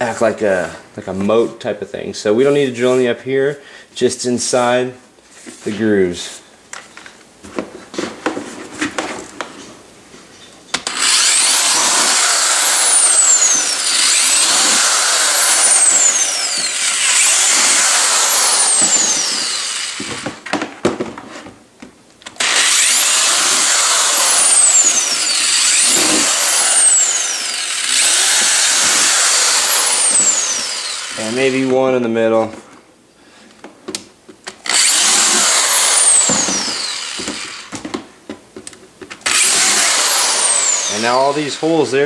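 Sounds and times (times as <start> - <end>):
electric drill whining: 10.8 - 20.4, 22.4 - 31.8, 34.6 - 37.8, 39.2 - 41.9.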